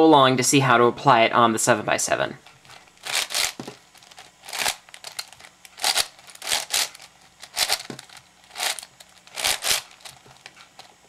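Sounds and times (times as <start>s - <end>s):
puzzle cube plastic scraping rattles: 2.4s - 11.0s.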